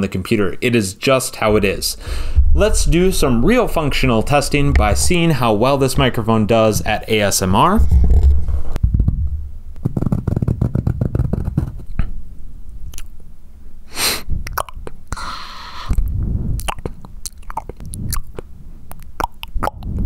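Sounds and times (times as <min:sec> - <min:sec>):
microphone handling rumble: 0:01.3 - 0:12.2, 0:15.9 - 0:16.7
breathy burst: 0:01.5 - 0:05.8, 0:15.2 - 0:16.6
wet mouth clicks and smacks: 0:12.9 - 0:13.1, 0:14.5 - 0:15.0, 0:16.6 - 0:20.0.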